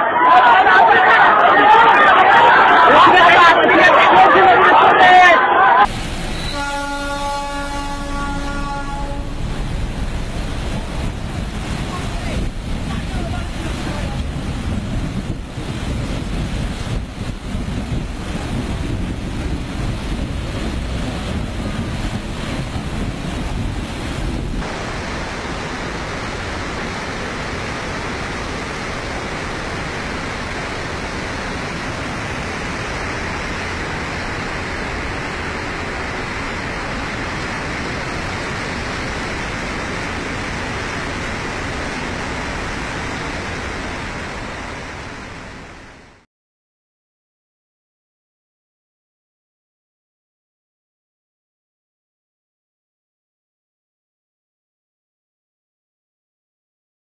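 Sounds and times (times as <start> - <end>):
flood torrent rushing: 0.0 - 46.2
floodwater splashing around train: 0.0 - 46.2
wind buffeting microphone: 9.2 - 28.4.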